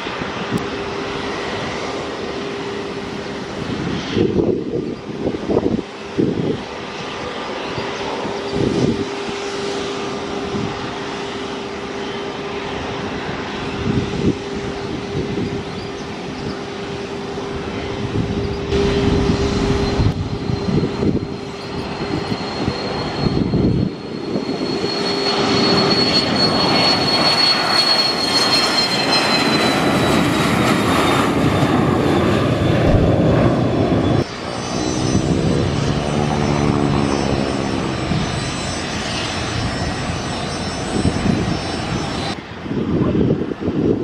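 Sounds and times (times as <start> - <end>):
high jet engine whine: 0.0 - 44.0
jet engines humming: 0.0 - 44.0.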